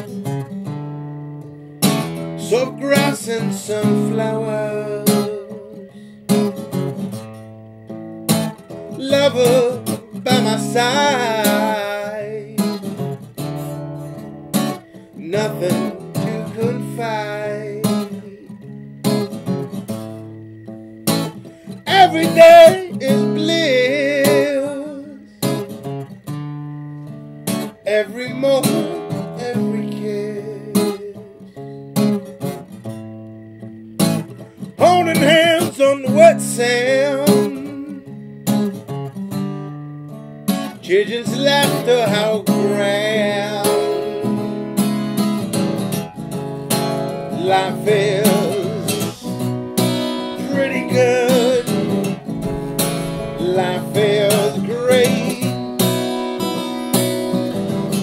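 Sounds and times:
acoustic guitar: 0:00.0 - 0:58.0
man singing with vibrato: 0:02.4 - 0:06.0, 0:08.9 - 0:12.9, 0:15.1 - 0:18.6, 0:21.8 - 0:25.4, 0:27.8 - 0:31.4, 0:34.8 - 0:38.2, 0:40.8 - 0:44.4, 0:47.3 - 0:56.6.

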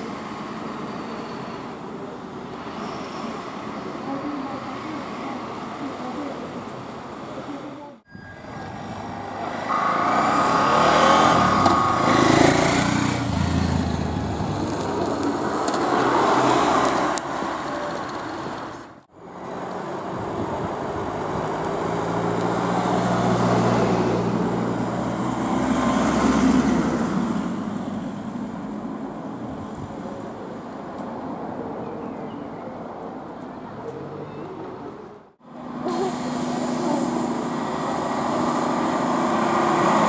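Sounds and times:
short steady tone: 0:08.1 - 0:10.2
van driving past: 0:08.8 - 0:18.2, 0:21.2 - 0:28.7
motorcycle accelerating away: 0:10.0 - 0:15.1, 0:35.8 - 0:40.0.

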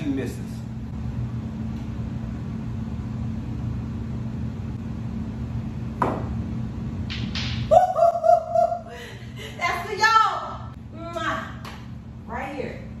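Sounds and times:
low room hum: 0:00.0 - 0:13.0
pool cue striking ball: 0:06.0 - 0:06.4, 0:07.0 - 0:07.7.

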